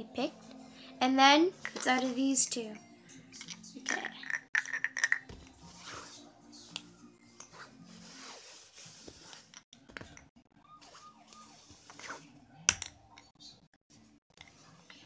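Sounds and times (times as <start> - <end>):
bottle caps clicking and knocking: 3.4 - 5.5.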